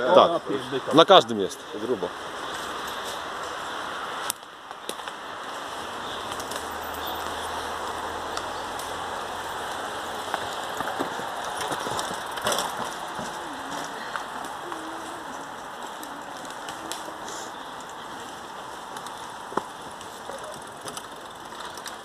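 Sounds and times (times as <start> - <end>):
mountain bikes clicking and rattling: 0.0 - 22.0.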